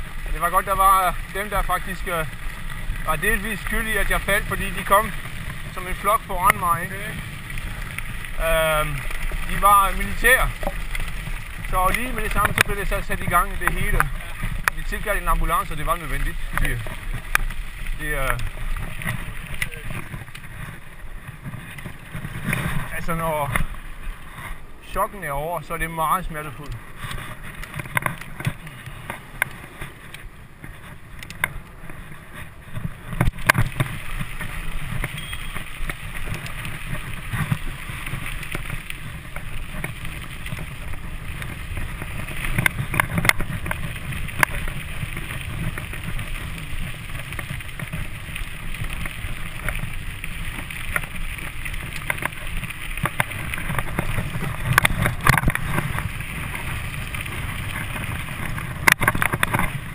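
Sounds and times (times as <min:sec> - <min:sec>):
bike rattles and knocks: 0:00.0 - 0:59.9
tyre rumble on gravel: 0:00.0 - 0:59.9
wind noise on microphone: 0:26.8 - 0:59.9.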